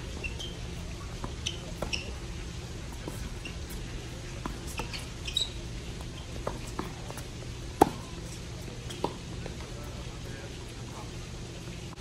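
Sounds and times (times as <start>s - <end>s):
sneakers squeaking on court: 0.0s - 10.0s
tennis ball pops: 7.8s - 8.2s.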